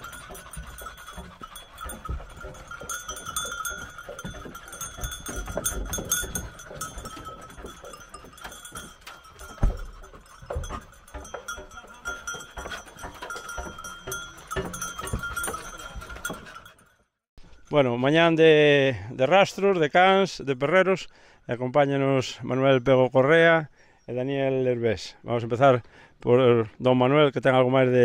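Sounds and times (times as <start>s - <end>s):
dogs knocking in metal cages: 0.0s - 16.7s
metal bells clanking: 0.0s - 18.7s.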